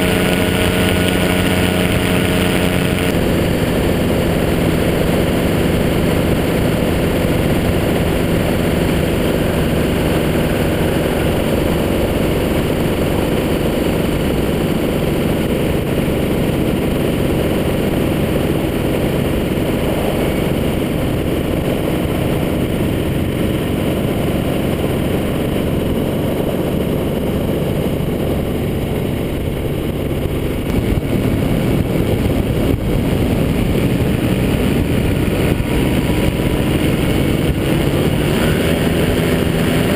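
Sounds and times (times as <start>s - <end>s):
two-stroke aircraft engine running: 0.0s - 39.9s.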